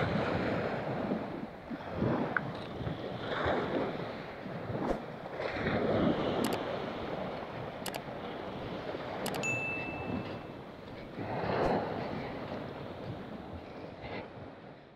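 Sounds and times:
waves washing at shoreline: 0:00.0 - 0:14.9
wind buffeting microphone: 0:00.0 - 0:14.9
mouse clicks: 0:09.3 - 0:09.5.

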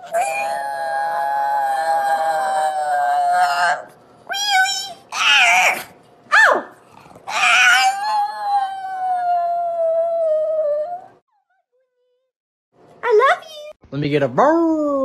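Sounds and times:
dog howling: 0:00.0 - 0:11.2.

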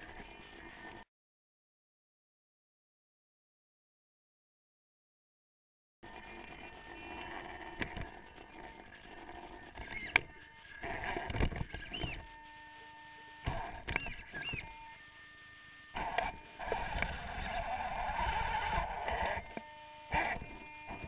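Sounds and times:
electric motor and gear whines: 0:00.0 - 0:01.1, 0:06.0 - 0:21.0.

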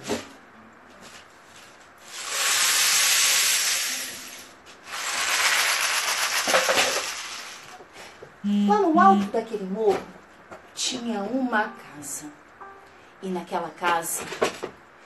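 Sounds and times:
rain stick rushing patter: 0:02.1 - 0:07.8.

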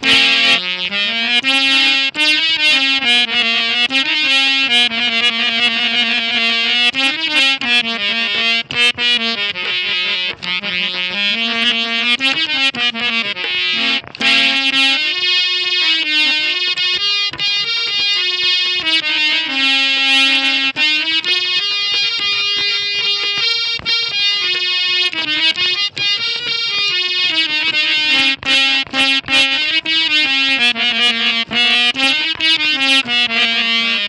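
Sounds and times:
harmonium folk melody: 0:00.0 - 0:34.0.

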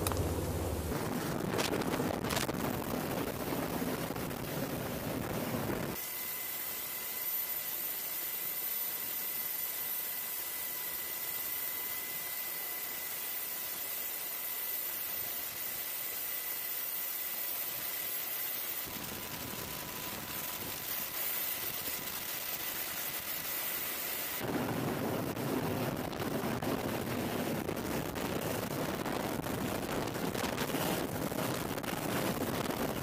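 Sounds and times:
deep rushing noise: 0:00.0 - 0:02.4
helicopter hovering hiss: 0:00.0 - 0:33.0.

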